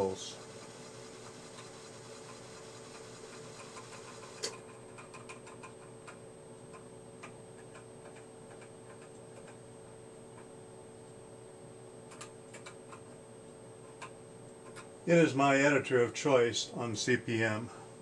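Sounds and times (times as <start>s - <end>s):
faint high whine: 0.0s - 4.5s
steady background hum: 0.0s - 18.0s
keyboard keys clicking: 4.0s - 9.6s, 12.1s - 13.0s.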